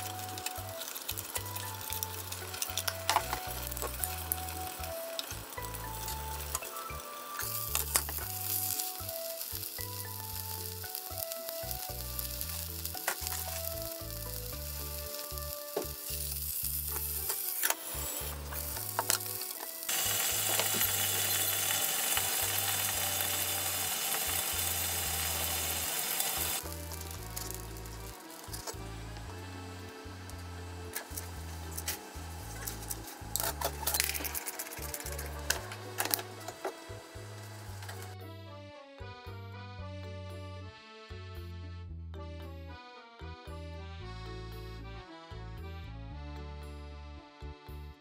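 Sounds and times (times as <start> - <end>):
background music: 0.0 - 48.0
meat sizzling in frying pan: 0.1 - 28.6.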